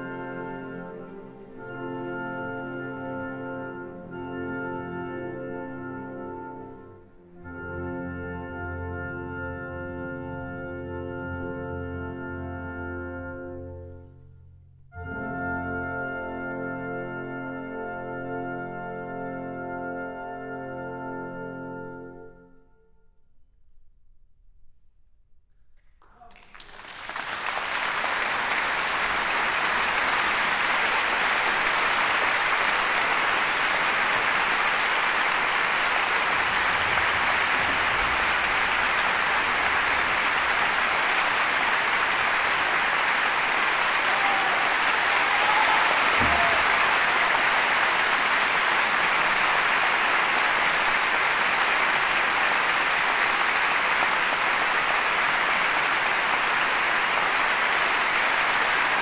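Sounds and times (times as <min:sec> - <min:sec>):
audience applauding: 0:26.0 - 0:59.0.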